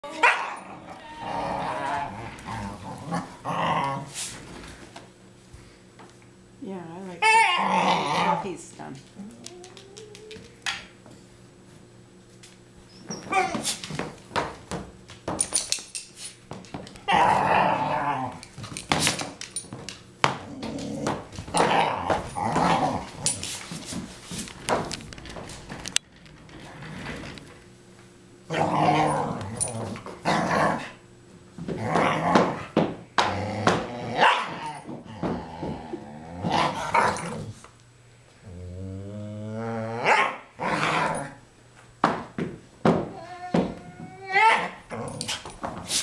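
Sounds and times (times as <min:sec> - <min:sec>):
dog whining: 0:00.0 - 0:04.1, 0:07.2 - 0:08.5, 0:09.2 - 0:10.6, 0:12.8 - 0:13.8, 0:17.0 - 0:18.4, 0:28.5 - 0:29.7, 0:43.1 - 0:45.3
dog growling in play: 0:00.1 - 0:04.4, 0:07.2 - 0:08.5, 0:17.0 - 0:18.5, 0:20.4 - 0:23.4, 0:28.5 - 0:31.0, 0:31.7 - 0:37.6, 0:38.4 - 0:41.4, 0:44.2 - 0:45.7.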